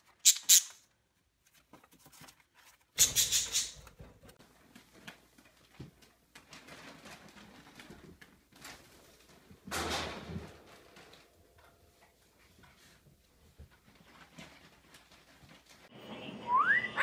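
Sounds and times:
budgerigars chirping: 0:03.0 - 0:03.8.

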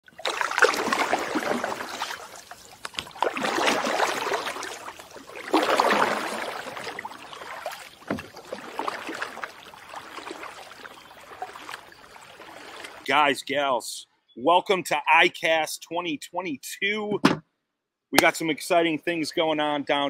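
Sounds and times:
splashing rushing water: 0:00.0 - 0:13.1.

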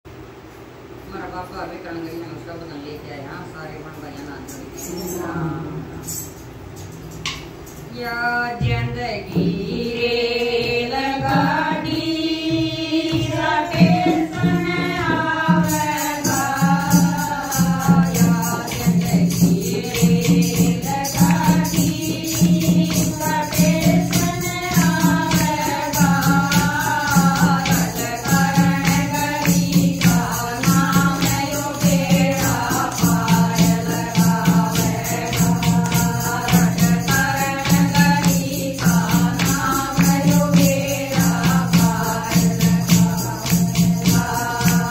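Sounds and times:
jingling percussion: 0:03.7 - 0:44.9
women singing in unison: 0:07.9 - 0:44.9
hand drum beat: 0:08.7 - 0:44.9
hand clapping: 0:35.4 - 0:40.8.

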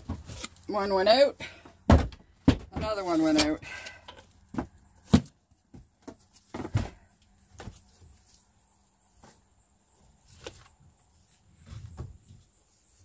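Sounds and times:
firewood knocking as it lands: 0:01.9 - 0:03.0.

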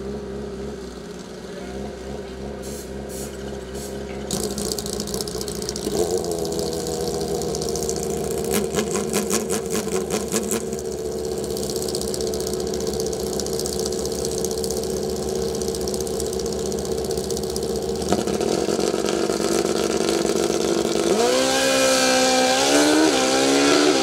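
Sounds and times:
motorcycle engine idling: 0:00.0 - 0:21.4
rapid rattle of clicks: 0:04.1 - 0:18.2.

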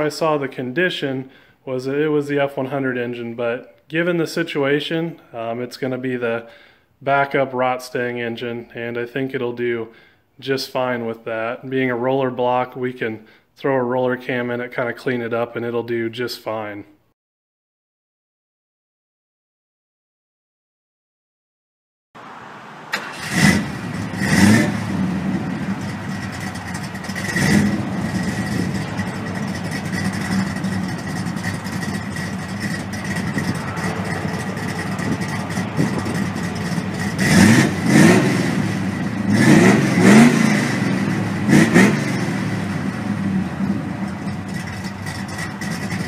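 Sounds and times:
engine idling and revving: 0:22.2 - 0:46.0.

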